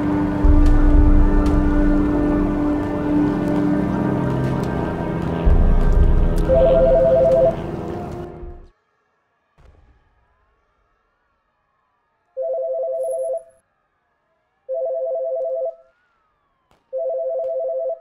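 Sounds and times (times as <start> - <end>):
telephone ringing: 6.5 - 7.6, 12.4 - 13.5, 14.7 - 15.8, 17.0 - 18.0.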